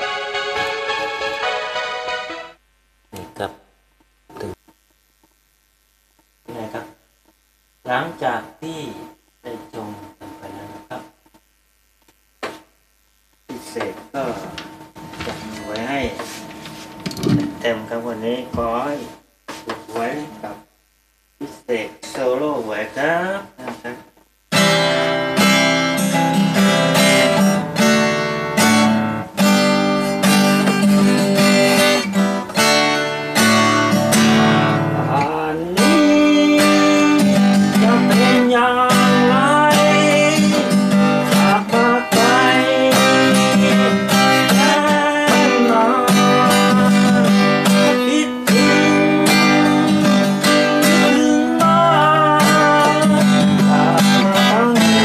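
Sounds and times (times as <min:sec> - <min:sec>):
acoustic guitar strumming chords: 0:00.0 - 0:03.4, 0:24.5 - 0:55.0.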